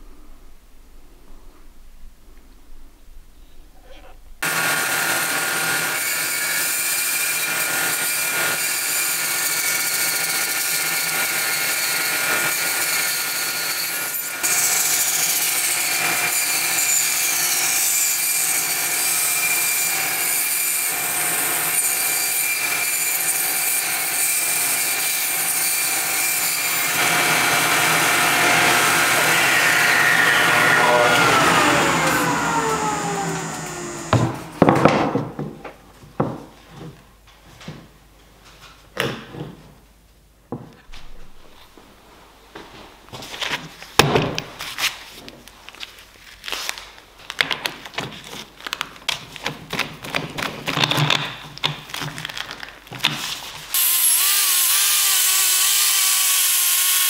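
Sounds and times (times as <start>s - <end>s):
bandsaw cutting wood: 4.4s - 34.9s, 53.7s - 57.0s.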